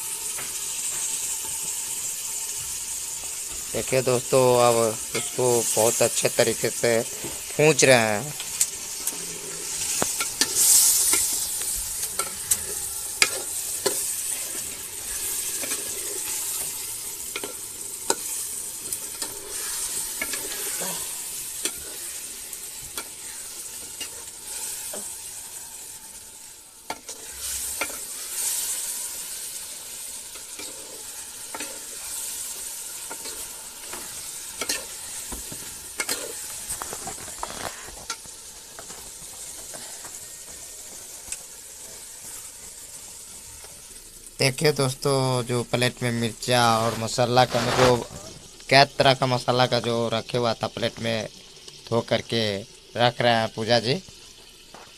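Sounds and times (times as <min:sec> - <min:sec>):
meat sizzling in a pot: 0:00.0 - 0:54.9
ladle scraping a metal pot: 0:09.0 - 0:22.2, 0:33.0 - 0:38.9.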